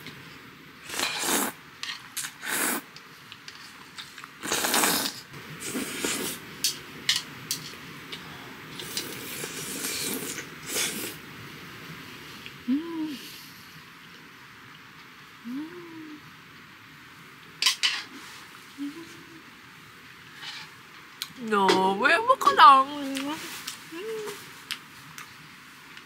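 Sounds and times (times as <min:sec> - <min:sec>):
person slurping noodles: 0:00.9 - 0:01.6, 0:02.2 - 0:02.9, 0:04.4 - 0:06.4, 0:08.8 - 0:11.2.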